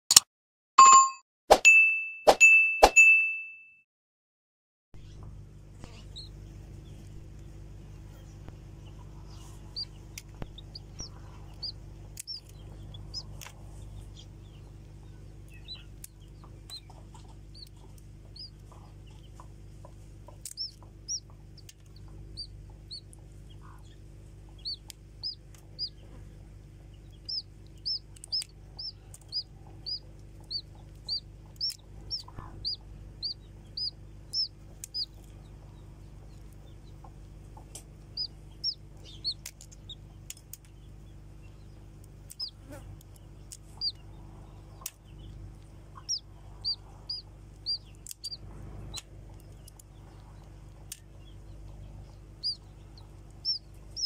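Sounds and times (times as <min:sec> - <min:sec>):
chick peeping: 0:05.0 - 0:54.0
steady low hum: 0:05.0 - 0:54.0
eggshell clicks: 0:10.1 - 0:13.5, 0:20.4 - 0:22.5, 0:27.1 - 0:32.8, 0:33.8 - 0:35.3, 0:37.7 - 0:40.7, 0:42.3 - 0:43.9, 0:46.1 - 0:49.9.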